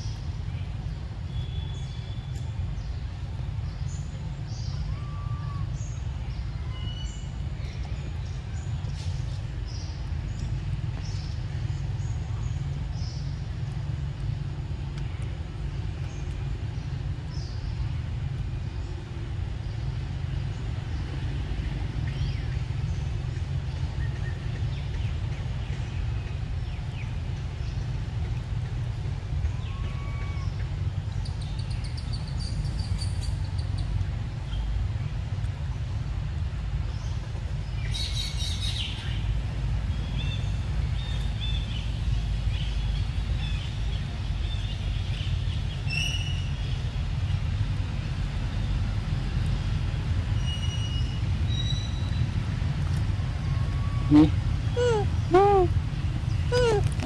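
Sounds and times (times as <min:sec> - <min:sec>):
steady low rumble: 0:00.0 - 0:37.9, 0:51.1 - 0:57.0
bird chirps: 0:54.1 - 0:55.7, 0:56.3 - 0:57.0.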